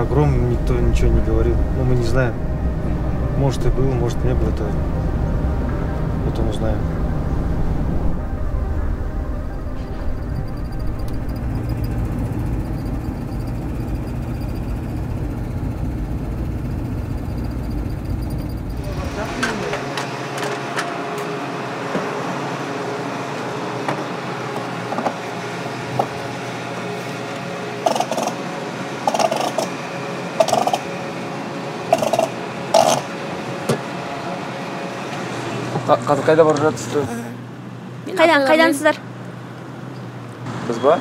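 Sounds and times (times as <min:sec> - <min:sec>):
vehicle rumble and road noise: 0:00.0 - 0:41.0.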